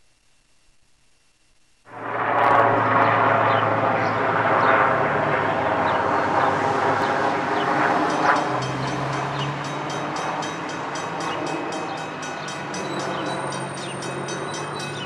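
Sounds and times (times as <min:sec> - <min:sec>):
freight train running: 0:05.9 - 0:15.0.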